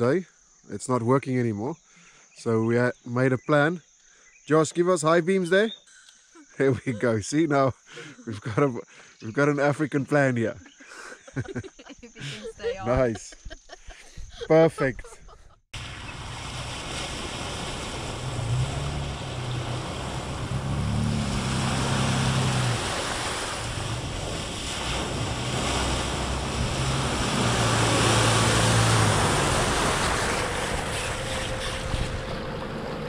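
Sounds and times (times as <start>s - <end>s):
car engine running: 15.8s - 33.0s
water splashing: 15.8s - 33.0s.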